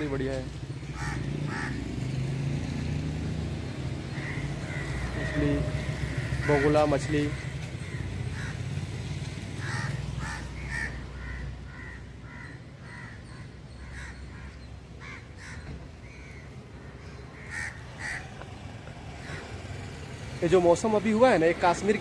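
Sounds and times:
crows cawing: 0.8 - 2.3, 3.8 - 19.6.

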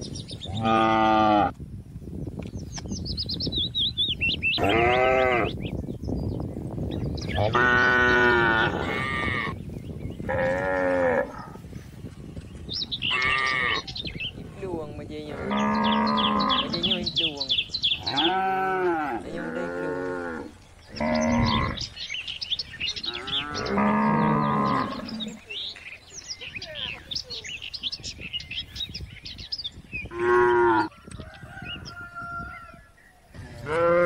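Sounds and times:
cattle mooing: 4.6 - 5.5, 7.4 - 9.6, 15.3 - 16.9, 18.0 - 21.9, 23.0 - 25.4, 33.6 - 34.0.

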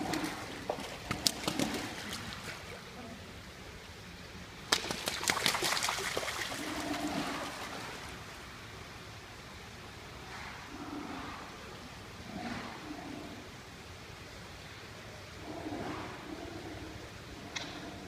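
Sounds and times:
water trickling and splashing: 0.0 - 3.1, 4.7 - 8.7.

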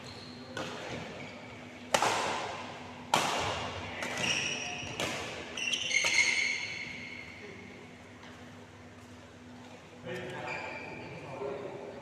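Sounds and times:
shoe squeaks: 0.0 - 0.6, 4.2 - 5.0, 5.6 - 7.4, 10.4 - 11.2
rackets hitting shuttlecock: 0.6 - 1.1, 1.9 - 6.4.

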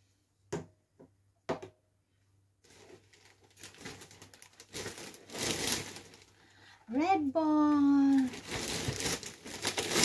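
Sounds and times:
plastic bag rustling: 2.6 - 10.0.

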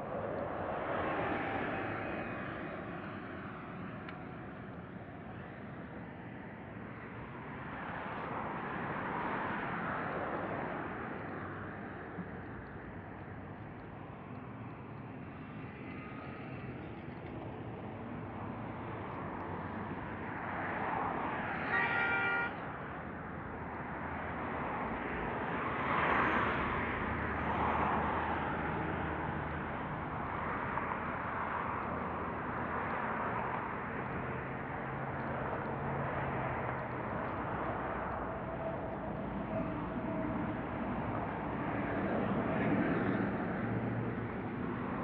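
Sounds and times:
road traffic passing: 0.0 - 45.0
car horn honk: 21.6 - 22.6.

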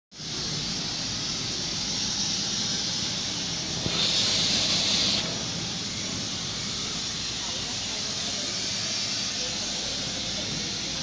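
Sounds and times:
water chiller airy hiss and hum: 0.2 - 11.0.

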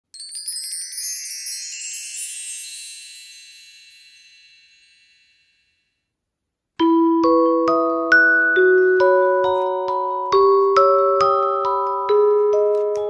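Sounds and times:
glockenspiel-like tune: 0.0 - 6.1, 6.8 - 13.0
shimmering bell chime: 0.2 - 6.0.

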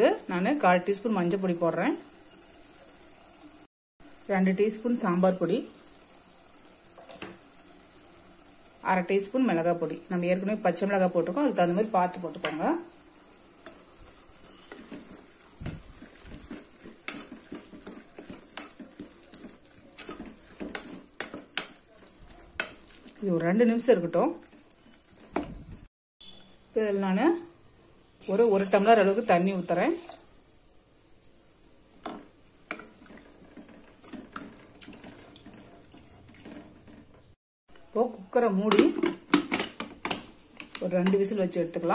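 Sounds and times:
food sizzling in a pan: 0.0 - 37.4
sauce sloshing in a pot: 13.3 - 25.6, 28.2 - 37.3
wooden spatula scraping a pan: 13.5 - 23.6, 31.2 - 37.4.

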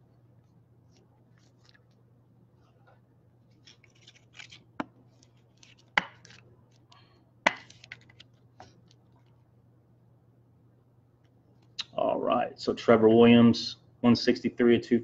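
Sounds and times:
plastic card sleeves rustling: 0.8 - 2.0, 3.5 - 9.4.

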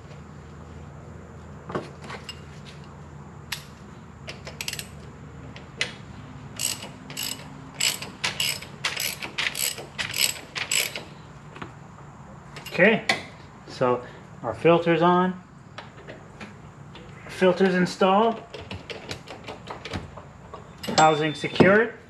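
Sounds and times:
ratchet wrench clicking: 4.3 - 5.0, 6.6 - 11.1.

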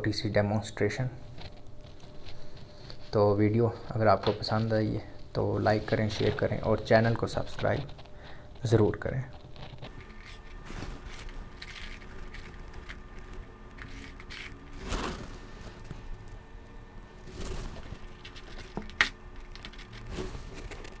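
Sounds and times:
paper scraping and rustling: 5.4 - 21.0.

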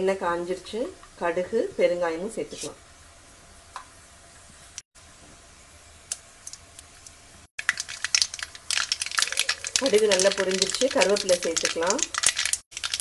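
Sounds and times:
seeds popping in hot oil: 6.1 - 13.0.

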